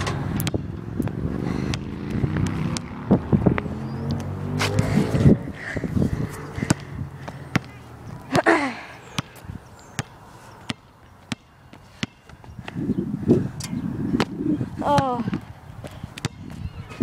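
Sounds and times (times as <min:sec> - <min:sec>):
basketball bouncing on asphalt: 0:00.2 - 0:05.0, 0:06.3 - 0:07.8, 0:09.0 - 0:13.1, 0:14.0 - 0:16.8.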